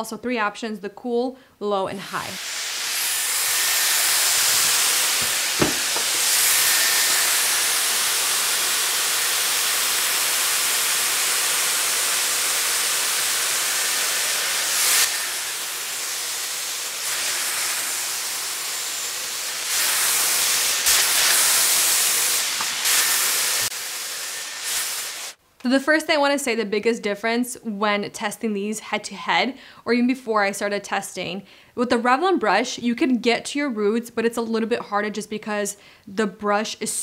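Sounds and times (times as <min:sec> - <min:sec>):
hair styler air hiss: 0:02.0 - 0:25.4.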